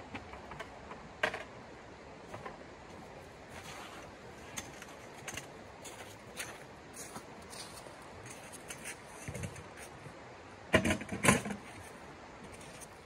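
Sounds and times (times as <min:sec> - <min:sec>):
footsteps crunching on frozen ground: 0:03.5 - 0:05.2, 0:05.8 - 0:09.2.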